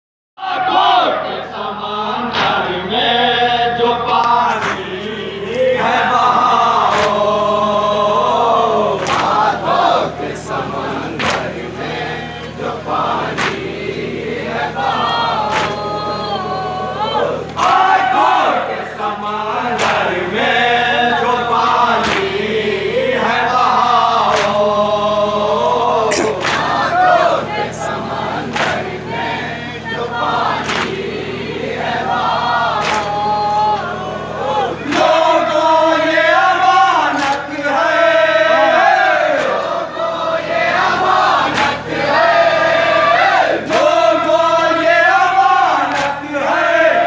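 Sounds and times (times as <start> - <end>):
men chanting in unison: 0.4 - 47.0
sharp slap: 9.0 - 9.4, 13.4 - 13.6, 15.5 - 15.8, 30.6 - 31.0, 32.8 - 33.1
man chanting through a microphone: 24.9 - 26.4.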